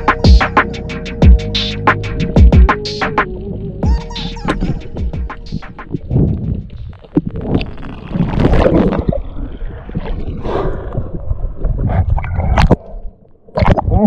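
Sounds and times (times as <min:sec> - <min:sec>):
water gurgling and sloshing: 0:05.8 - 0:14.0.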